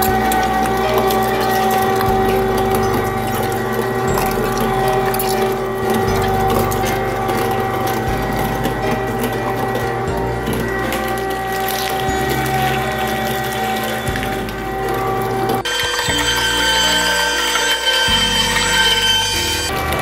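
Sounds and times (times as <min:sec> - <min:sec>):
meat grinder motor humming: 0:00.0 - 0:20.0.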